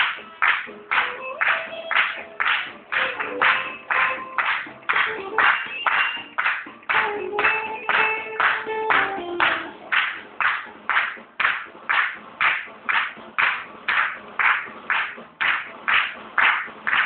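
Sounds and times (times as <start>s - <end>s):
audience clapping in unison: 0.0s - 17.0s
paso doble music: 0.0s - 17.0s.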